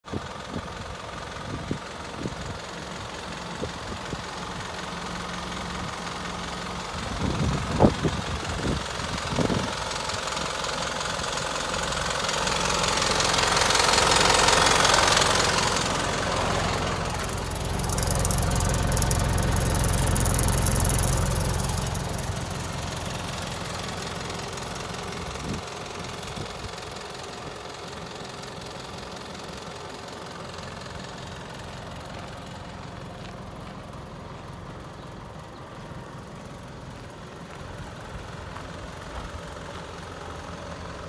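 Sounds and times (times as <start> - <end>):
diesel engine idling: 0.1 - 41.0
sharp clicks: 17.3 - 22.1.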